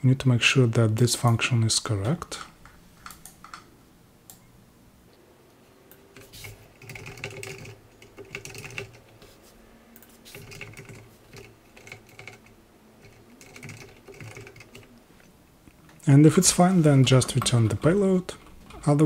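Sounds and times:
typing on computer keyboard: 0:06.1 - 0:09.0, 0:10.3 - 0:14.9.

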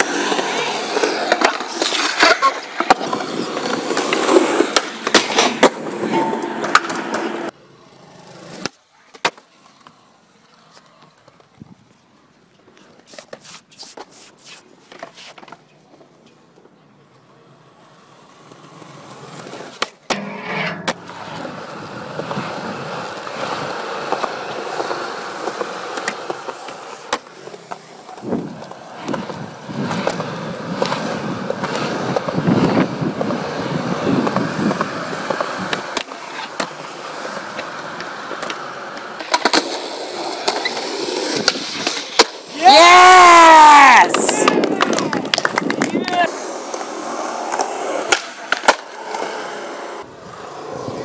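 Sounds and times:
skateboard clacking: 0:00.0 - 0:07.6, 0:18.2 - 0:43.1, 0:44.0 - 0:51.0
skateboard wheels rolling on concrete: 0:00.0 - 0:51.0
person crying out: 0:42.6 - 0:44.4.

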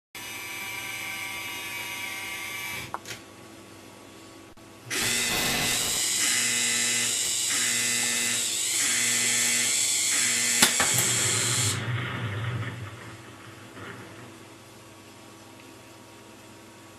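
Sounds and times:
small electric motor whirring: 0:00.2 - 0:02.9, 0:04.9 - 0:11.8.

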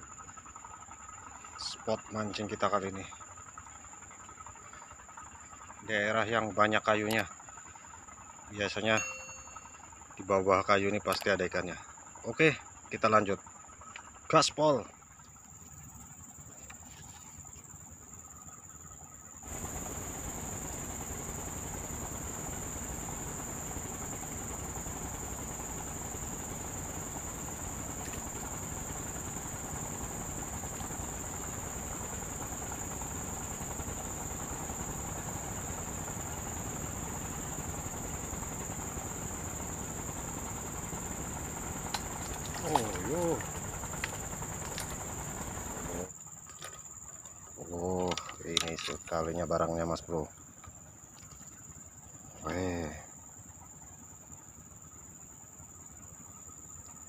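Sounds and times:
high-pitched whine: 0:08.8 - 0:10.1.

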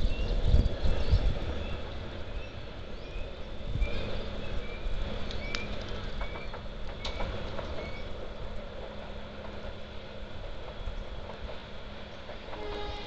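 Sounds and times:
sharp clicks: 0:05.2 - 0:07.8.

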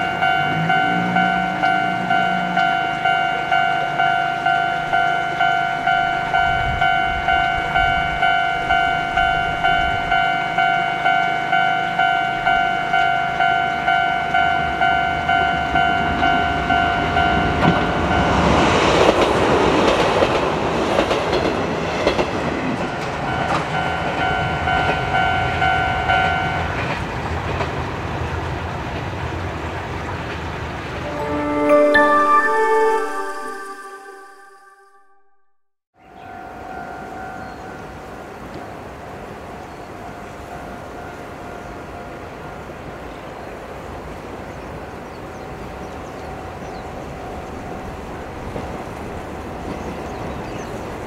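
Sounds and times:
level-crossing alarm ringing: 0:00.0 - 0:18.9, 0:22.8 - 0:26.8, 0:31.0 - 0:35.2
electric train passing: 0:00.0 - 0:35.0.

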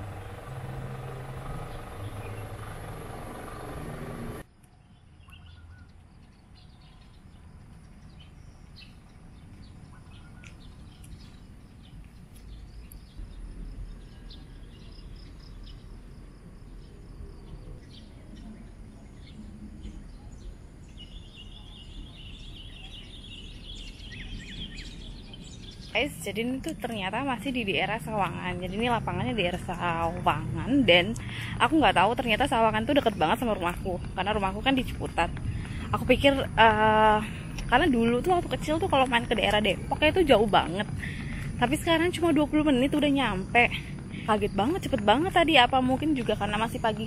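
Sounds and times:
high-pitched buzz: 0:00.0 - 0:04.4
vehicle engine running: 0:00.0 - 0:04.5, 0:26.8 - 0:47.0
low wind rumble: 0:00.0 - 0:05.2, 0:05.8 - 0:47.0
birds chirping: 0:00.0 - 0:16.0, 0:16.7 - 0:47.0.

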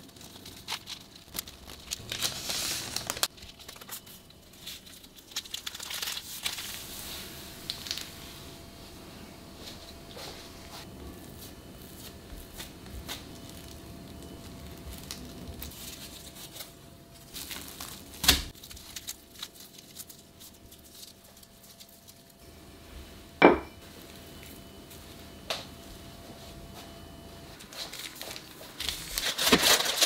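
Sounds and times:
plastic cling wrap crinkling: 0:00.0 - 0:08.2, 0:11.8 - 0:22.4, 0:27.6 - 0:30.0.

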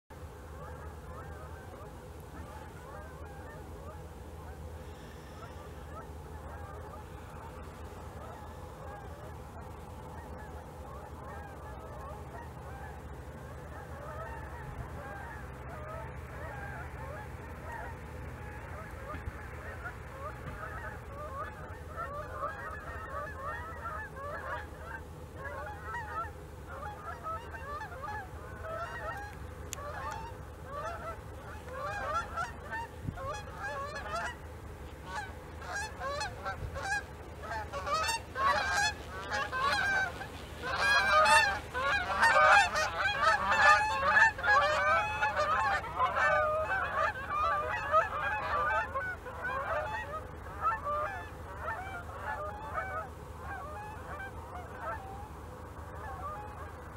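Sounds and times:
geese honking overhead: 0:00.1 - 0:56.9.

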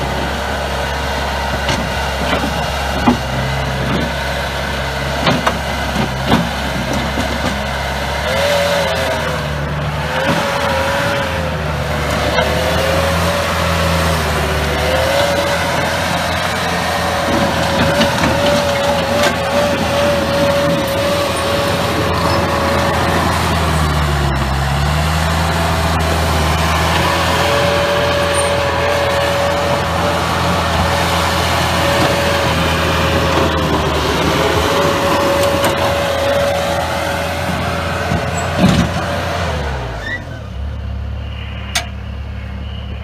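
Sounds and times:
diesel engine running: 0:00.0 - 0:43.0
wavering whine: 0:39.9 - 0:43.0.

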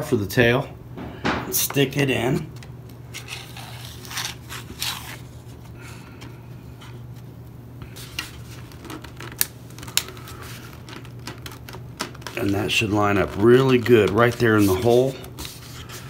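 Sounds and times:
steady low hum: 0:00.0 - 0:16.0
plastic and foam parts rubbing: 0:08.0 - 0:16.0.

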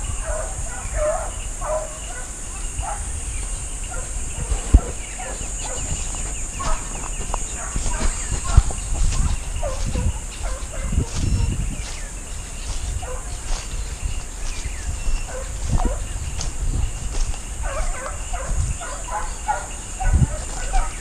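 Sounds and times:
hounds yelping and baying: 0:00.0 - 0:21.0
steady high buzz: 0:00.0 - 0:21.0.

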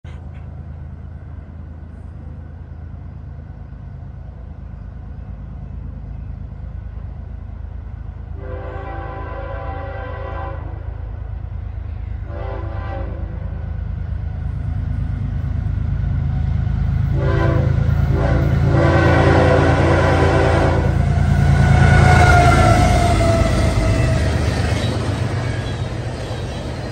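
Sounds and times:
diesel locomotive rumble: 0:00.0 - 0:26.9
train air horn: 0:08.4 - 0:11.0, 0:12.1 - 0:13.6, 0:17.1 - 0:24.5.

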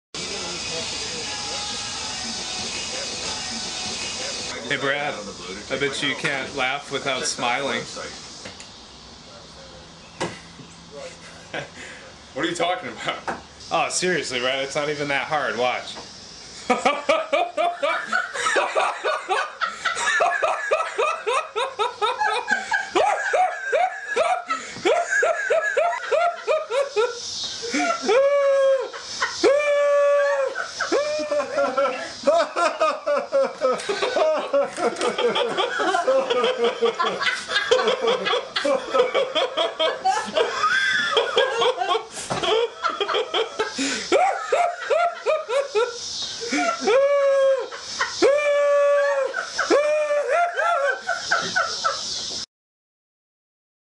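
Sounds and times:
man laughing in short bursts: 0:16.6 - 0:52.0.

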